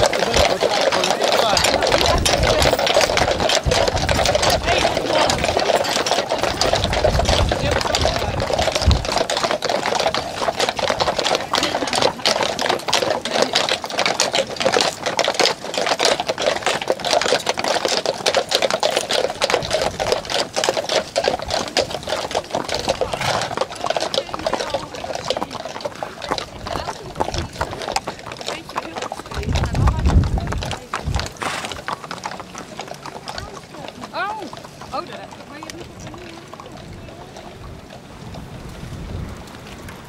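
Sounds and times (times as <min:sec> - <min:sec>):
wind buffeting microphone: 0:00.0 - 0:13.0, 0:19.4 - 0:20.6, 0:21.3 - 0:32.0, 0:34.4 - 0:40.0
horse hooves clip-clopping on asphalt: 0:00.0 - 0:40.0.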